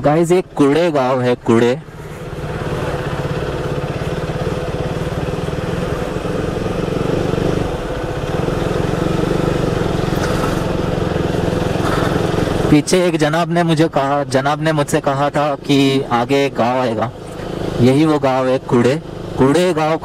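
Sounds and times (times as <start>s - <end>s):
motorcycle engine running: 0.0s - 20.0s
rushing noise: 1.8s - 12.8s.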